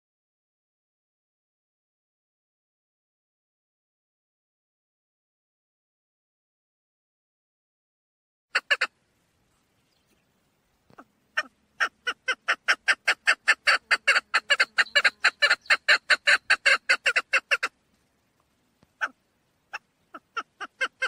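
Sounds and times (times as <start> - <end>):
partridge calling: 8.5 - 17.8, 18.8 - 21.0.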